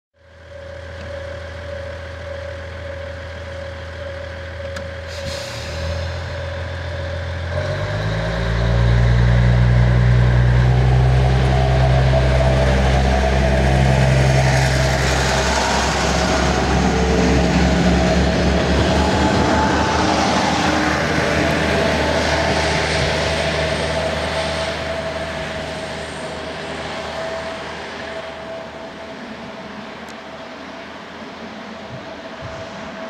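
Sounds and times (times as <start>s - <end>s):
diesel railcar engine: 0.2s - 33.0s
train cars rolling past: 0.3s - 33.0s
brief hiss: 5.1s - 6.3s.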